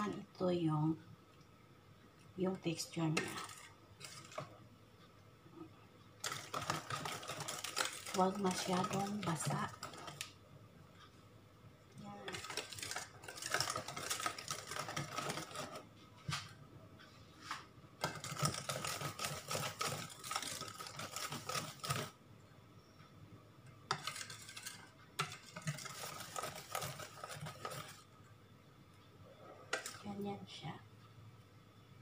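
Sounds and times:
whisk clicking against metal bowl: 6.2s - 10.3s, 12.3s - 15.8s, 18.0s - 22.2s, 23.9s - 28.0s.

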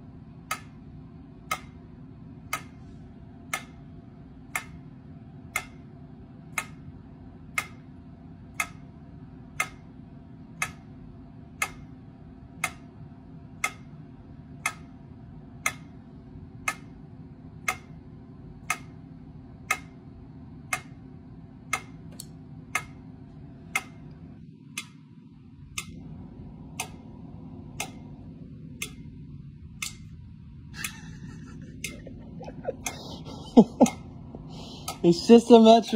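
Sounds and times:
low steady hum: 0.0s - 35.9s
metronome clicking: 0.4s - 0.8s, 1.4s - 1.8s, 2.5s - 2.8s, 3.5s - 3.8s, 4.5s - 4.9s, 5.5s - 5.9s, 6.5s - 6.8s, 7.6s - 7.8s, 8.5s - 8.9s, 9.6s - 9.9s, 10.6s - 10.9s, 11.6s - 11.9s, 12.6s - 12.9s, 13.6s - 13.9s, 14.6s - 15.0s, 15.6s - 16.0s, 16.6s - 17.0s, 17.7s - 18.0s, 18.6s - 19.0s, 19.6s - 20.0s, 20.7s - 21.0s, 21.7s - 23.0s, 23.7s - 25.0s, 25.7s - 26.1s, 26.7s - 27.0s, 27.7s - 28.1s, 28.7s - 30.2s, 34.8s - 35.1s.

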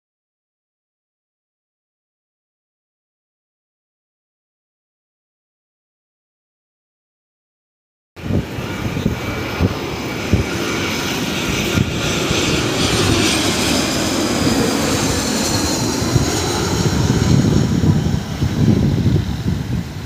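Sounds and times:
jet engine roar: 8.2s - 20.0s.

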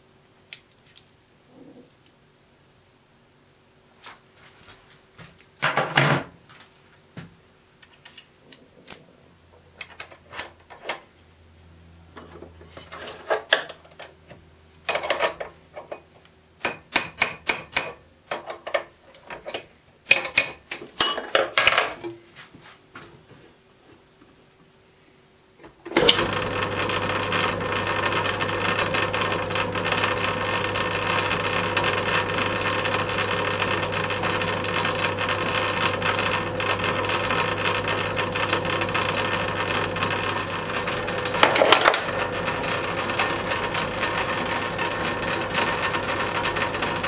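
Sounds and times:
metal tools clinking and clattering: 20.2s - 22.4s.

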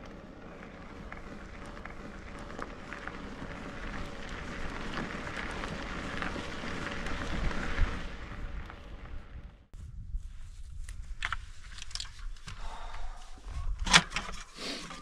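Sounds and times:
bicycle tyres crunching on gravel: 0.0s - 12.8s.

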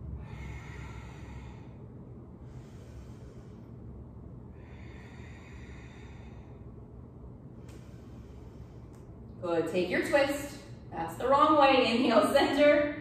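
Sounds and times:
person breathing: 0.0s - 9.3s
steady low hum: 0.0s - 13.0s.

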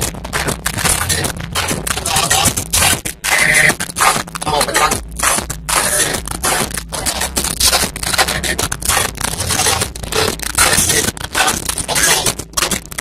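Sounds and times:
rough rushing and scraping noise: 0.0s - 13.0s
steady low rumble: 0.0s - 13.0s.

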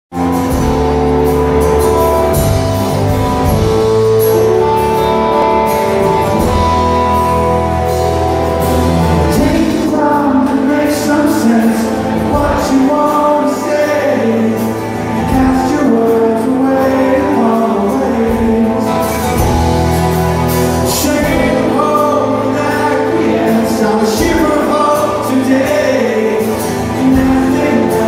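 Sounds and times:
acoustic guitar strumming: 0.1s - 28.0s
man singing: 9.0s - 19.5s, 20.7s - 28.0s.

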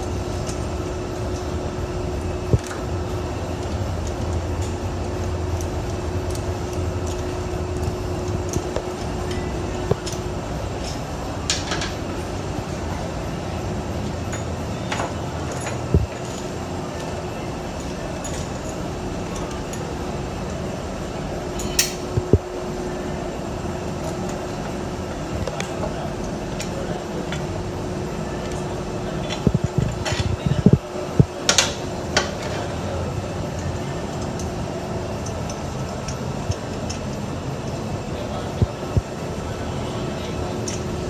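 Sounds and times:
mechanical hum: 0.0s - 41.0s
metallic clinks of tools: 21.5s - 22.1s.

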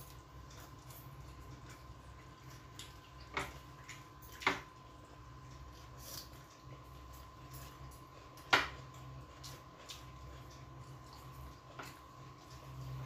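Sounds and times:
faint steady hum: 0.0s - 13.0s
wet chewing and lip smacks: 5.4s - 13.0s.

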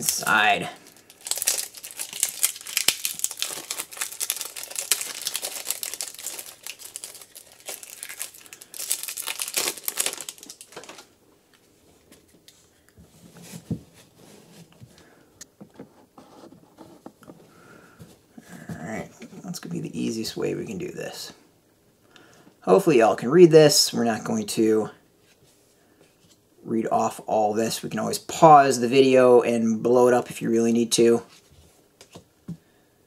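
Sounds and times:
packaging crinkling and tearing: 0.0s - 11.1s.

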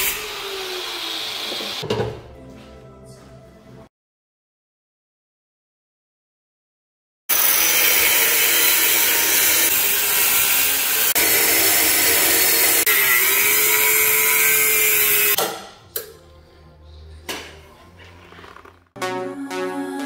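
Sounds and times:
angle grinder cutting metal: 0.0s - 1.8s, 7.3s - 15.4s.

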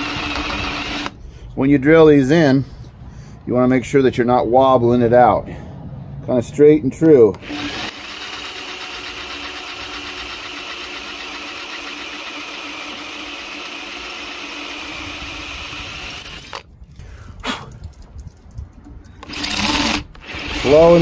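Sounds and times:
electric drill boring into metal: 0.0s - 1.2s, 7.4s - 16.6s, 19.2s - 21.0s.

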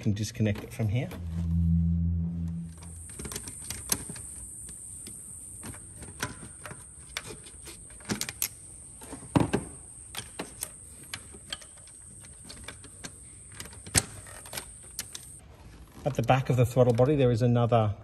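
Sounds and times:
high-pitched insect buzz: 1.3s - 12.5s.

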